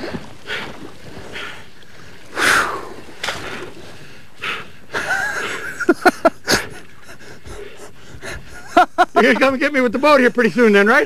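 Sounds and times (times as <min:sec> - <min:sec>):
man breathing hard: 0:00.1 - 0:05.7, 0:06.4 - 0:08.7.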